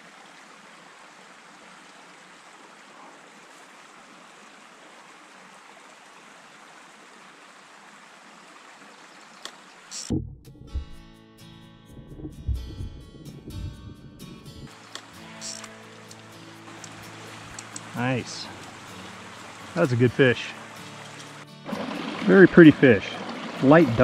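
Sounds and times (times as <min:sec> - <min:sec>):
creek water flowing: 0:00.0 - 0:10.1, 0:11.9 - 0:24.0
sharp click: 0:14.9 - 0:16.2.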